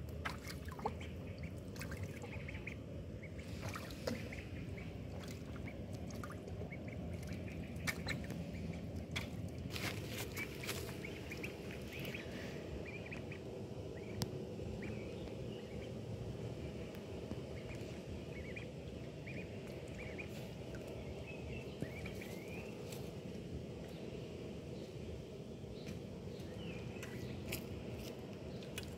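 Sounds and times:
low rumble: 0.0 - 28.8
splashing in puddle water: 0.2 - 2.4, 3.6 - 4.4, 5.1 - 11.4
duckling peeping: 0.2 - 15.9, 17.5 - 22.9.

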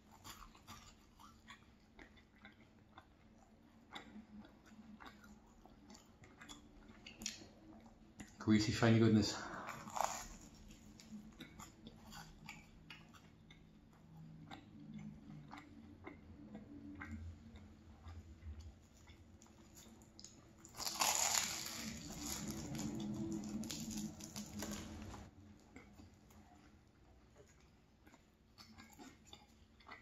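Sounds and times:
chewing croissant: 0.0 - 30.0
crackly rustle of pastry tearing: 9.7 - 11.1, 19.7 - 25.3.

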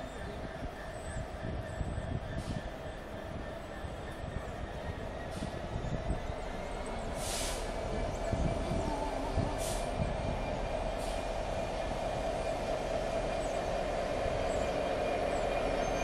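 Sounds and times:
diesel locomotive engine drone: 0.0 - 16.0
train wheel rumble: 0.0 - 16.0
short hisses: 7.2 - 7.7.

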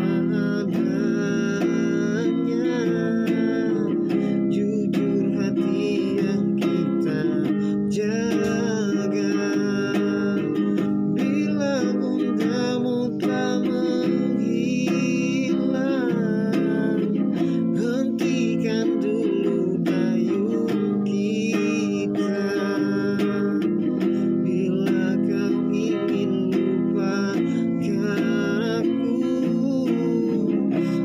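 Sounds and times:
classical guitar: 0.0 - 31.0
man singing: 0.0 - 31.0.

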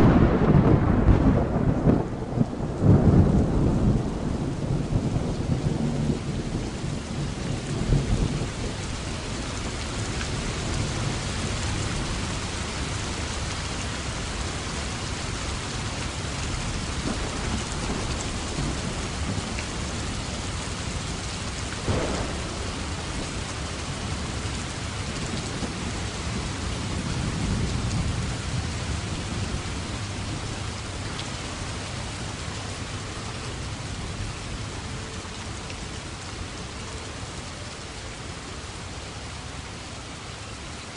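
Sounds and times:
thunder rolling: 0.0 - 8.7, 21.8 - 30.5
heavy rain: 0.0 - 40.9.

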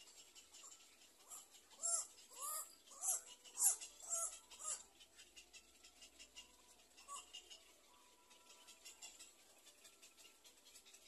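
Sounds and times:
harsh animal calls: 0.4 - 7.6.

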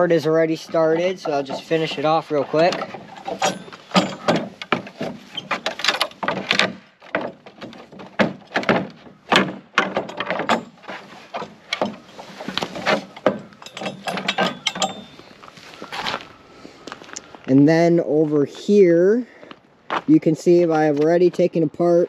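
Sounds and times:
wooden board cracking and creaking: 0.0 - 16.3.

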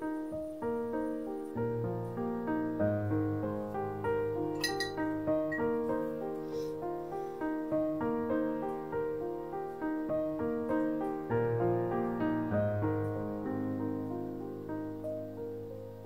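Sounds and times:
gentle solo piano music: 0.0 - 16.0.

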